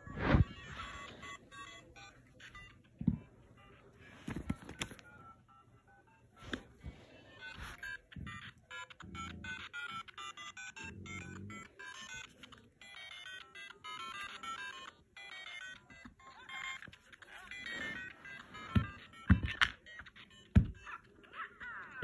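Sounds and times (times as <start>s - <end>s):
toy electronic jingle: 0.4s - 4.2s, 7.1s - 22.0s.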